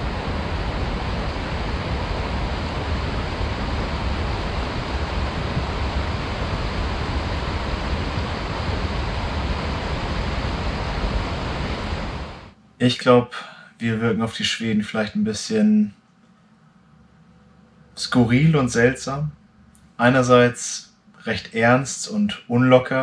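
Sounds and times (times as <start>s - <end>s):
rushing noise with deep rumble: 0.0s - 12.6s.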